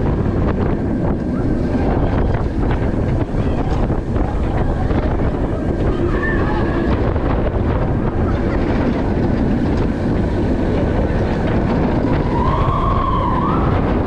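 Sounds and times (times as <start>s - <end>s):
roller coaster rushing on track: 0.0s - 14.0s
rising and falling whine: 10.5s - 14.0s.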